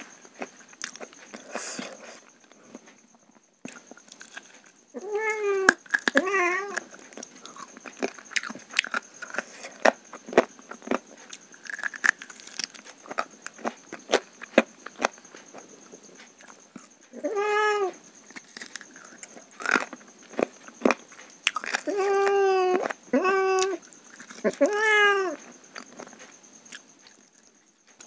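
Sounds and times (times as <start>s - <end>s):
cat meowing: 5.0s - 6.8s, 17.1s - 18.0s, 21.9s - 23.8s, 24.5s - 25.4s.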